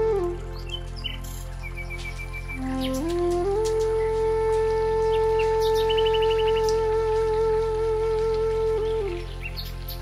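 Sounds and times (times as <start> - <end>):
soft background music: 0.0 - 10.0
bird chirping: 0.4 - 6.9, 8.7 - 10.0.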